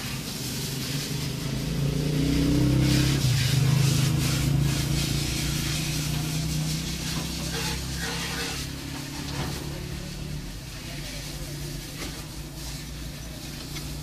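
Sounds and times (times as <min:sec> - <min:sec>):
car engine hum from inside cabin: 0:00.8 - 0:07.6.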